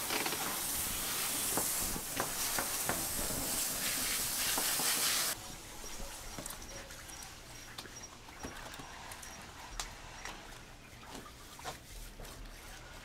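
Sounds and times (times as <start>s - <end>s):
hose nozzle spraying water: 0.0s - 5.4s.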